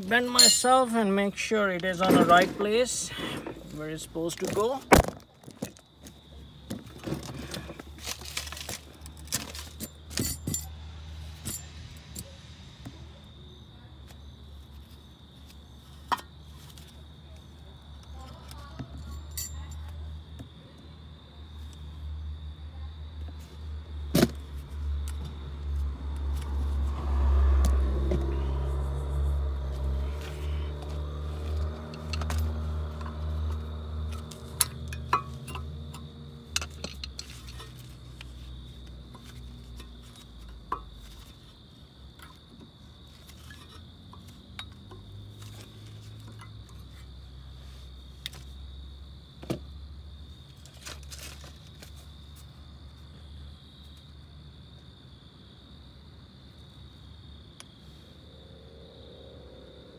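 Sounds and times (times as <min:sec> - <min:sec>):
engine rumble: 0:00.0 - 0:53.5, 0:54.6 - 0:59.9
crickets chirring: 0:00.0 - 0:59.9
metal brake parts clinking: 0:00.2 - 0:01.1, 0:09.3 - 0:12.2, 0:18.9 - 0:19.9, 0:34.1 - 0:38.4.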